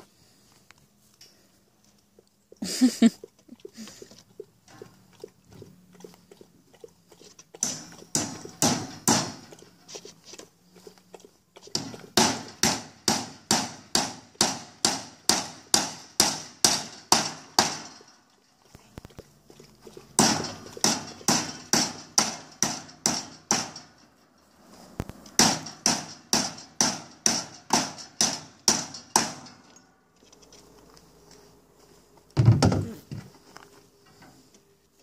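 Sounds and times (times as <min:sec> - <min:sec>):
hooves knocking on wooden plank: 0:07.6 - 0:09.6, 0:11.7 - 0:18.1, 0:20.2 - 0:23.9, 0:25.3 - 0:29.5.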